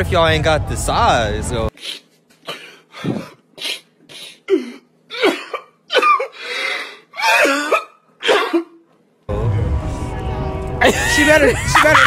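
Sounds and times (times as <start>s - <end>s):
man sobbing and wailing: 10.8s - 12.0s.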